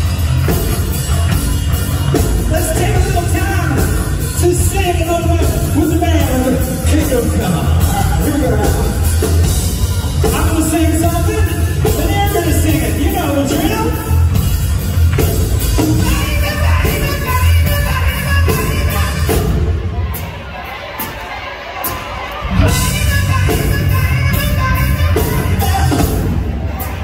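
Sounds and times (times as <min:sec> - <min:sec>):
hard rock band playing live: 0:00.0 - 0:27.0
sung lead vocal: 0:15.9 - 0:21.2, 0:21.8 - 0:27.0.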